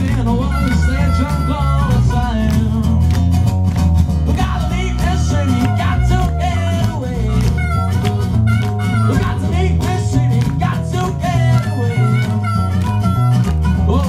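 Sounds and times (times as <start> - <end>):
harmonica: 0.0 - 2.4, 4.4 - 10.3, 11.2 - 14.0
blues-rock band playing: 0.0 - 14.0.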